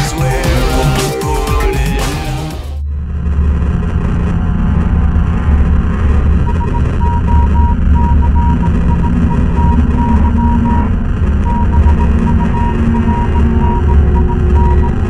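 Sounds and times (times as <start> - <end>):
deep rumbling electronic drone: 0.0 - 15.0
high pulsing beep tone: 6.4 - 15.0.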